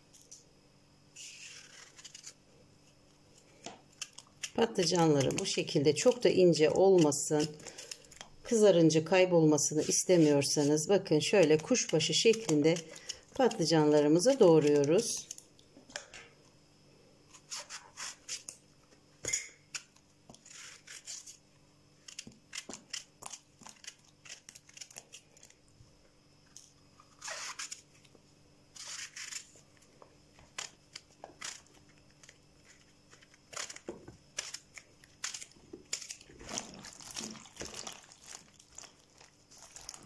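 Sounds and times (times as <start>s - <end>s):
knife cutting eggplant: 4.0s - 7.9s, 9.5s - 15.3s.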